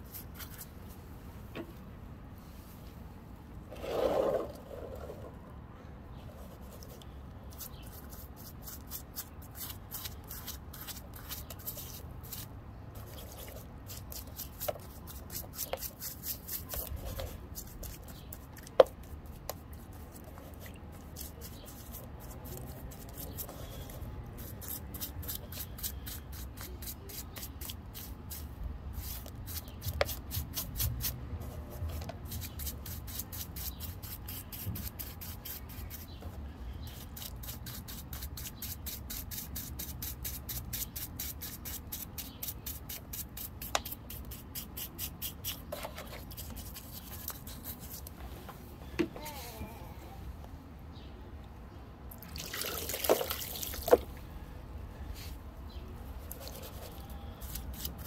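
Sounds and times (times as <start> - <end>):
brush scrubbing wet rock: 7.5 - 36.1
water dripping and splashing: 52.1 - 54.0.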